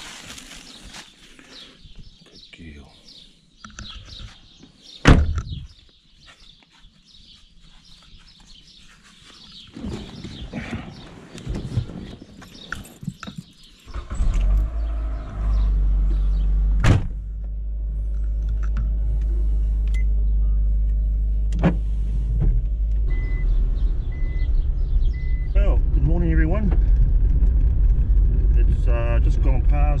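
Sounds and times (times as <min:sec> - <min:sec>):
shuffling: 0:00.0 - 0:01.8, 0:05.8 - 0:13.1
birds chirping faintly: 0:00.2 - 0:16.6
car door slamming: 0:05.0 - 0:05.5, 0:16.8 - 0:17.2
car engine starting and idling: 0:13.9 - 0:30.0.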